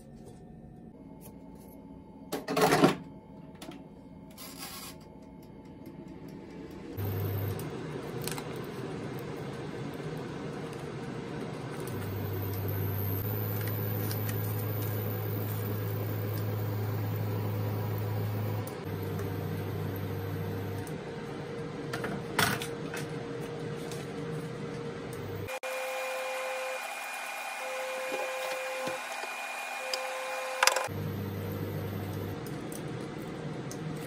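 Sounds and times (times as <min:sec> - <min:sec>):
kitchen appliance electrical hum: 0:00.0 - 0:34.0
deeper hum: 0:05.7 - 0:08.1, 0:11.8 - 0:21.0, 0:30.8 - 0:32.4.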